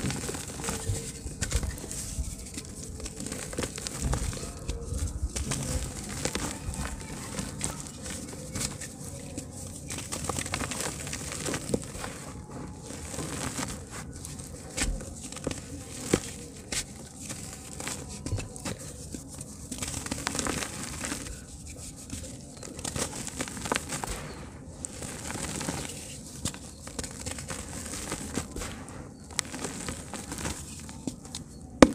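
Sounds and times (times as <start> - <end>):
crumbs pattering onto dirt: 0.0 - 31.9
hands crumbling dirt: 0.0 - 31.9.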